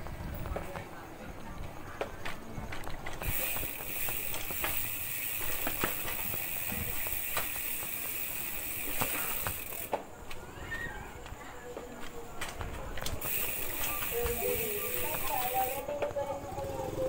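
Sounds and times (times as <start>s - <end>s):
bike knocks and rattles: 1.5s - 10.4s, 11.3s - 16.6s
bicycle freehub buzzing: 2.8s - 10.0s, 13.0s - 17.0s.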